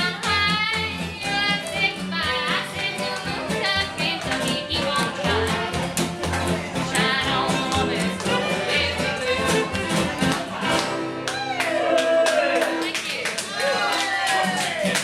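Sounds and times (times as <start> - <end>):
acoustic guitar strumming: 0.0 - 11.6
fiddle melody: 0.0 - 11.6.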